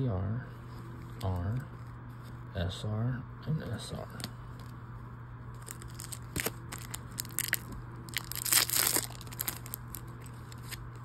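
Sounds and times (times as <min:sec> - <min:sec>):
foil pack tearing: 0:05.6 - 0:10.8
foil pack crinkling: 0:05.6 - 0:11.0.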